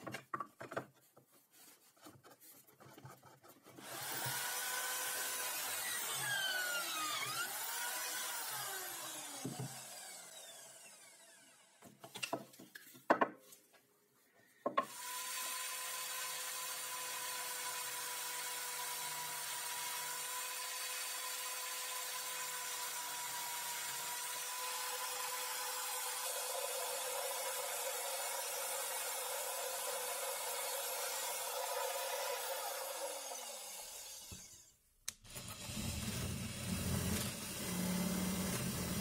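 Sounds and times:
angle grinder motor running: 3.8s - 11.7s
drill bit boring into wood: 3.8s - 11.8s, 14.8s - 34.6s, 35.2s - 39.0s.

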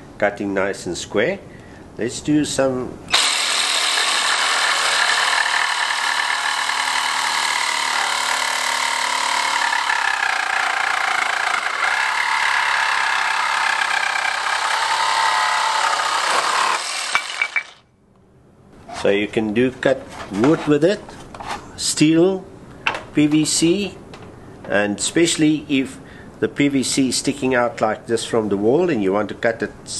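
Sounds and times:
reciprocating saw cutting wood: 3.1s - 17.8s.

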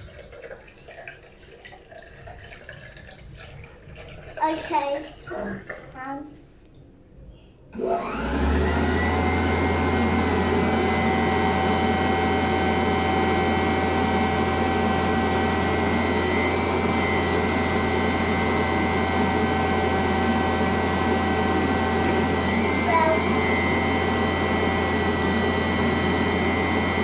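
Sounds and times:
electric hand dryer whining: 7.7s - 27.0s.

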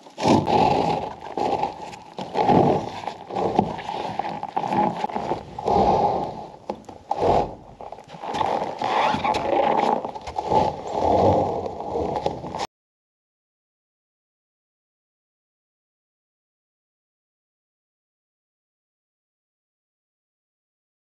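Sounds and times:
steel bars scraping through snow: 0.0s - 12.7s.

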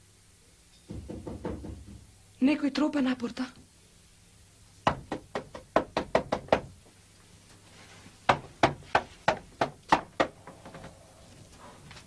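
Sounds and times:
quick knocking on gate: 0.9s - 2.1s.

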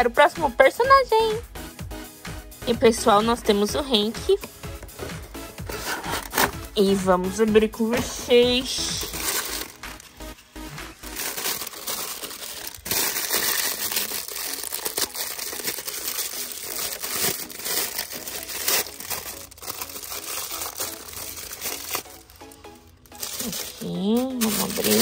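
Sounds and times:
packaging tearing: 5.6s - 6.7s, 8.9s - 10.0s, 11.0s - 25.0s
plastic wrap crinkling: 5.6s - 6.7s, 8.0s - 25.0s.

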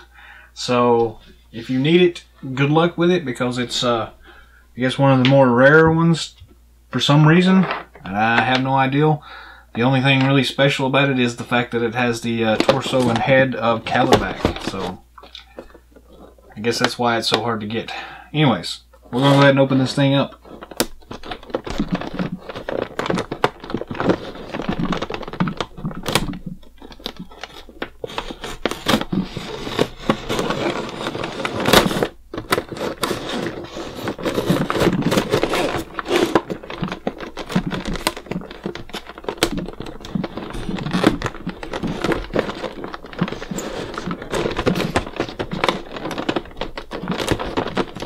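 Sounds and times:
knife cutting plastic packaging: 20.4s - 48.0s.

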